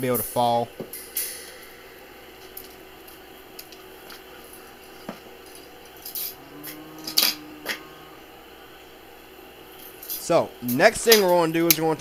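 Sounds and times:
faint low hum: 1.5s - 10.9s.

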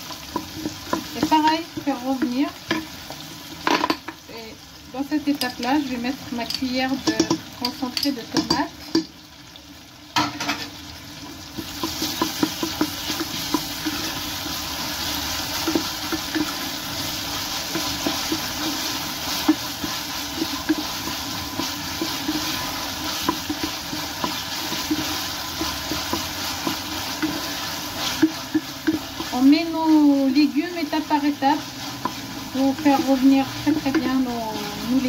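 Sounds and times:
wooden spoon scraping a pan: 0.0s - 4.1s, 11.6s - 35.0s
vegetables sizzling in oil: 0.0s - 35.0s.

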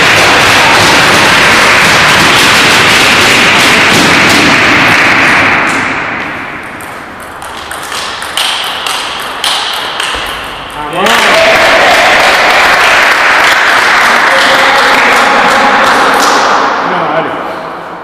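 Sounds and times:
loud steady rushing noise: 0.0s - 18.0s
table tennis ball clicks: 5.7s - 10.8s.

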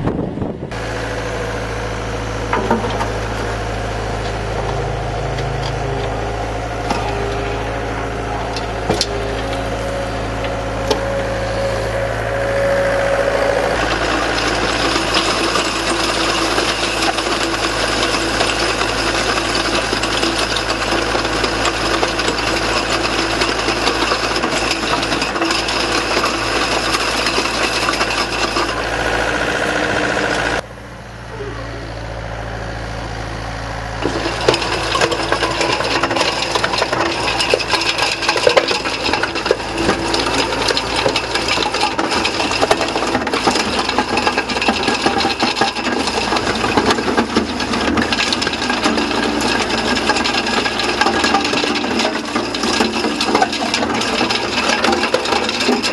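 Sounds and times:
excavator engine: 0.0s - 55.9s
soil pouring: 13.7s - 28.8s, 34.0s - 55.9s
screening bucket rattling: 13.8s - 28.8s, 34.0s - 55.9s.

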